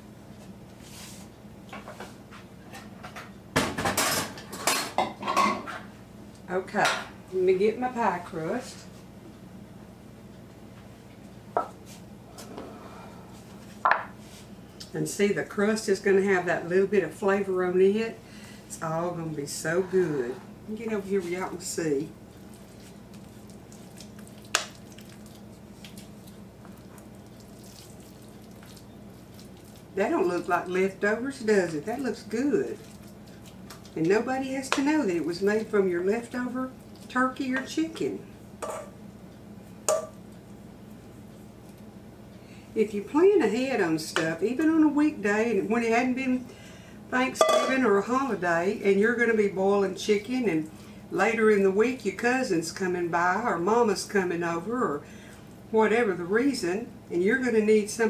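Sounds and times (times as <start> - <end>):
low steady hum: 0.0 - 58.0
kitchen utensils and dishes clattering: 2.7 - 5.9, 47.4 - 47.8.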